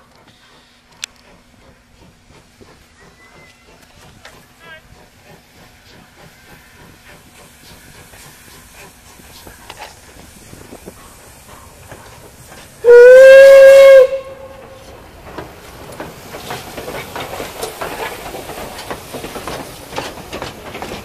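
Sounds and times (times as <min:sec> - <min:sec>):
train wheels clattering on rails: 0:00.0 - 0:21.0
steam locomotive whistle: 0:12.8 - 0:14.8.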